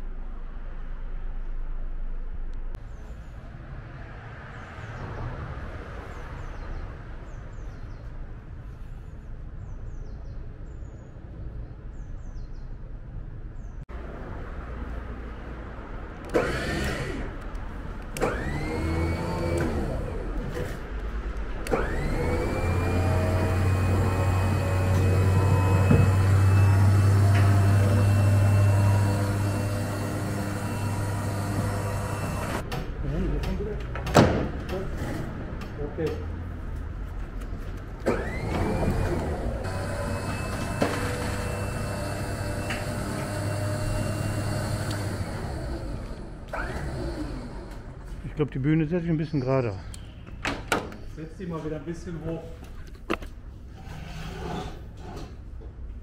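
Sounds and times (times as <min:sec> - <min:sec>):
low mechanical hum of truck: 0:13.5 - 0:48.7.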